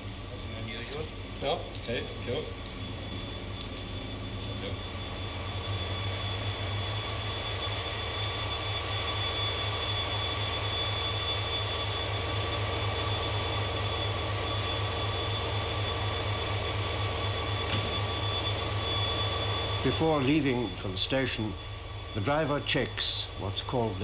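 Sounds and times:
diesel locomotive engine idling: 0:00.0 - 0:24.0.

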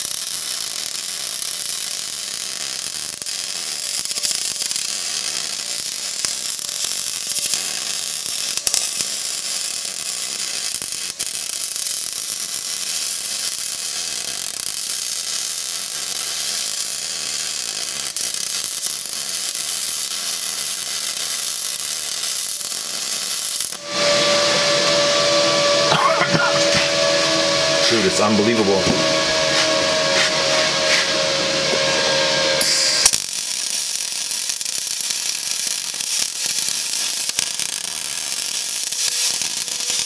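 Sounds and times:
welding arc crackling: 0:00.0 - 0:40.0.

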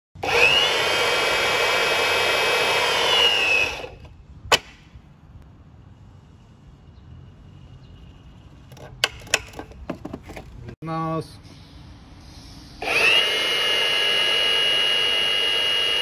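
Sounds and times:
hydraulic pump whining: 0:00.2 - 0:04.7, 0:12.8 - 0:16.0.

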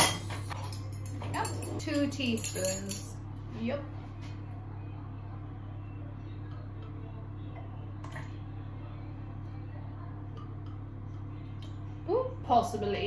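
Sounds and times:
metal spoon clink: 0:00.0 - 0:03.1
fan oven humming: 0:00.0 - 0:13.0.

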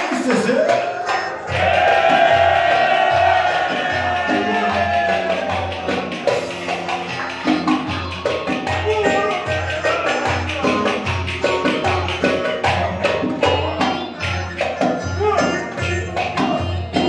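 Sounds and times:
driving percussion beat: 0:00.0 - 0:17.0.

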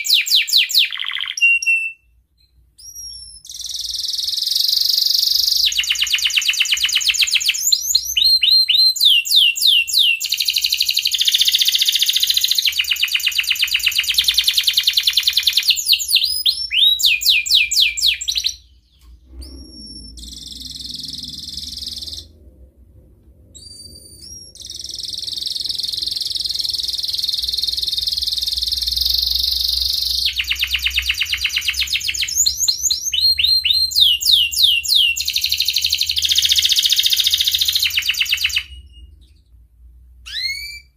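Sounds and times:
canary singing trills: 0:00.0 - 0:02.1, 0:02.8 - 0:22.4, 0:23.6 - 0:39.5, 0:40.2 - 0:40.9
short rising whistles: 0:16.2 - 0:22.6, 0:23.5 - 0:33.8.

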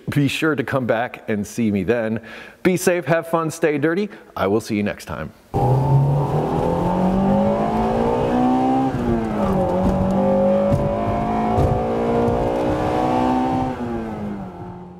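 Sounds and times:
car engine accelerating: 0:05.6 - 0:14.9.

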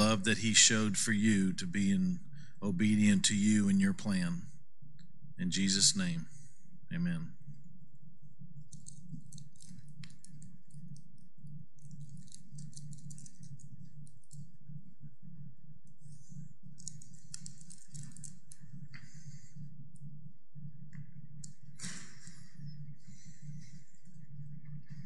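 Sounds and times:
low room hum: 0:00.0 - 0:25.0
faint irregular clicks: 0:07.6 - 0:25.0.

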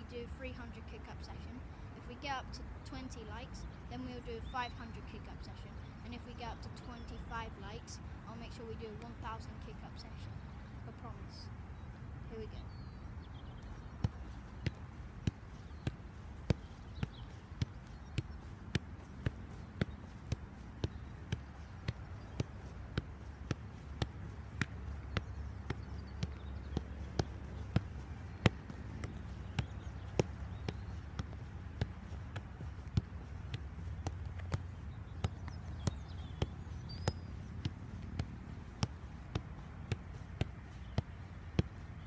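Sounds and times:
football kicked by shoe: 0:14.0 - 0:41.8.

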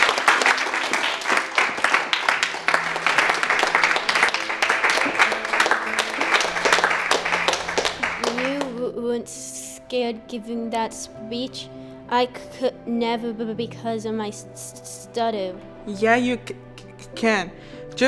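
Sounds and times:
people clapping: 0:00.0 - 0:08.8
soft background music: 0:00.0 - 0:18.0.

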